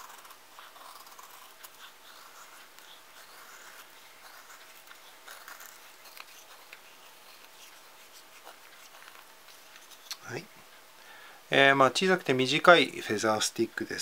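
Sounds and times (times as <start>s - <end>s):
knife scraping wooden stick: 0.0s - 10.2s.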